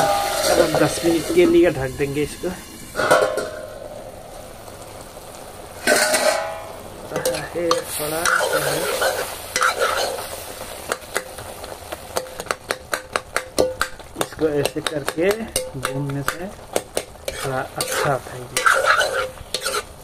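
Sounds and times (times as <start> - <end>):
steel lid clanking on pan: 0.0 - 1.6, 3.0 - 3.9, 5.8 - 8.7
ladle scraping pan: 0.0 - 1.8, 5.8 - 11.2, 17.0 - 20.0
ladle tapping pan: 0.0 - 1.8, 3.0 - 3.8, 5.8 - 19.9
curry sizzling: 0.0 - 20.0.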